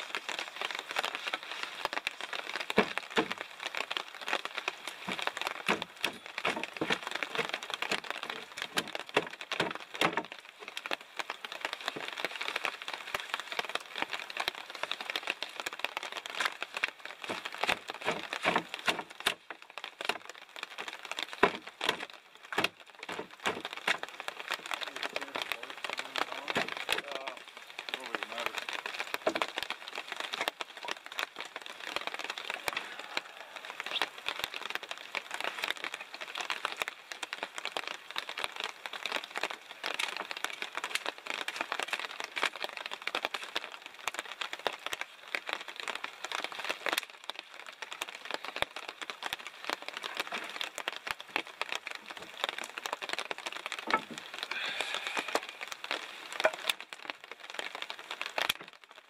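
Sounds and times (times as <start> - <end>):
hatchet chopping branches: 2.8 - 3.4, 5.1 - 10.4, 17.3 - 20.2, 21.4 - 24.0.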